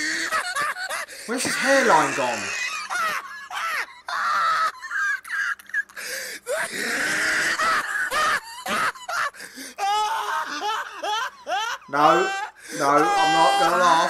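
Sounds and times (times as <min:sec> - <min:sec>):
person laughing hard: 0:00.0 - 0:09.4.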